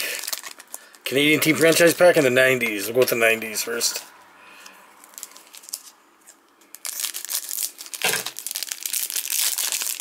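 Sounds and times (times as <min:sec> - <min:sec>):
plastic wrapper crinkling and tearing: 0:00.0 - 0:02.0, 0:05.0 - 0:10.0.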